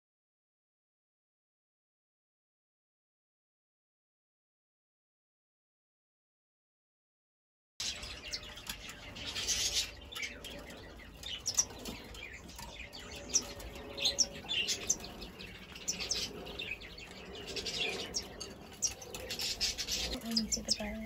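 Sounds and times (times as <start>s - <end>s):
high bird chirps: 7.8s - 21.0s.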